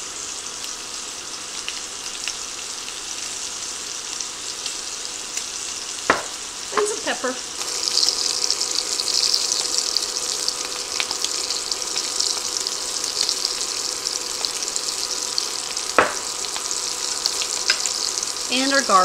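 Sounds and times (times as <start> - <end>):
meat sizzling in oil: 0.0 - 19.0
short knock: 16.0 - 16.2.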